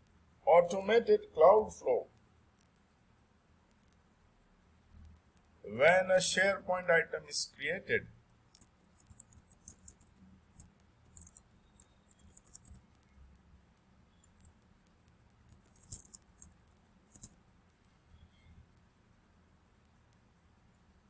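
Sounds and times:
typing on computer keyboard: 8.5s - 13.2s, 14.2s - 17.3s.

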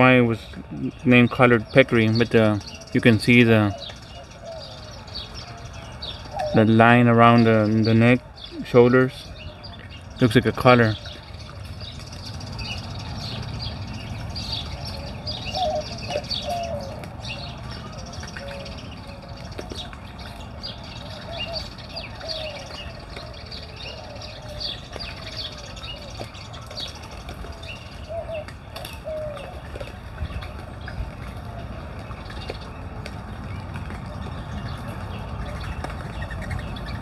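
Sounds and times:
birds chirping: 0.0s - 37.0s
lower curving bird calls: 0.0s - 37.0s.

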